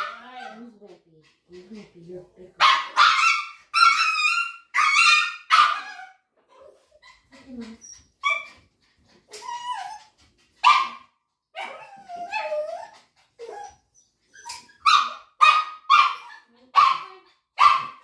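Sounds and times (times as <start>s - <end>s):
dog yelping and crying: 2.7s - 8.6s, 9.3s - 11.0s, 11.6s - 18.0s.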